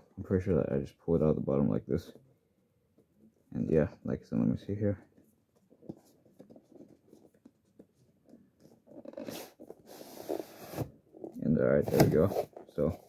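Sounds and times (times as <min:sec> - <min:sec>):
faint handling noises: 0:01.9 - 0:13.0
cardboard scraping and rustling: 0:08.6 - 0:13.0.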